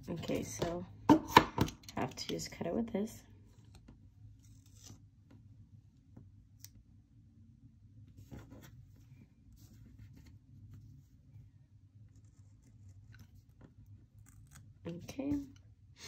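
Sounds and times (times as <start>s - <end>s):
craft knife scratching paper: 12.1s - 13.4s.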